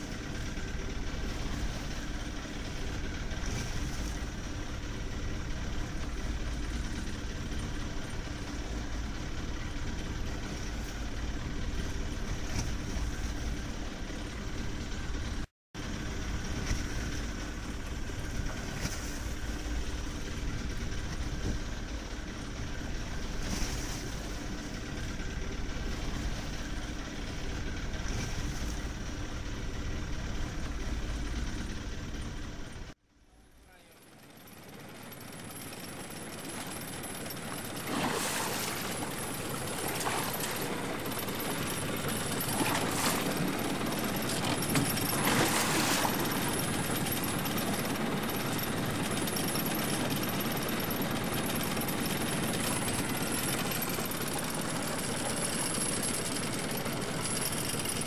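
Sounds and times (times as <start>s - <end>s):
boat engine idling: 0.0s - 58.0s
water noise: 36.4s - 48.7s.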